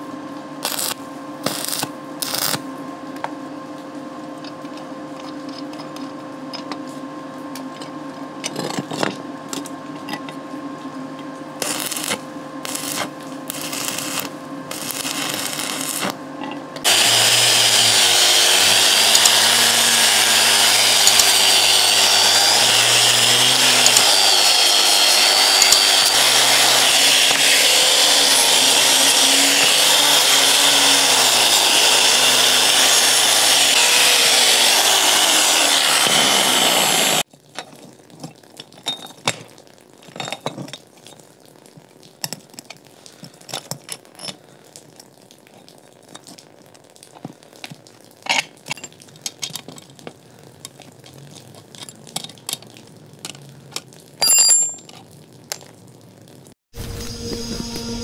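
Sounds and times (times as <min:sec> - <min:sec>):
angle grinder grinding steel: 0:00.6 - 0:02.6, 0:11.6 - 0:16.2, 0:16.8 - 0:37.2
faint clinks of metal parts: 0:54.2 - 0:55.1.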